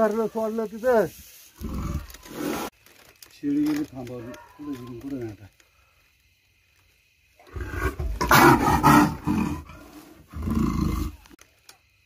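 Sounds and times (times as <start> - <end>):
leopard growling: 7.4 - 11.4.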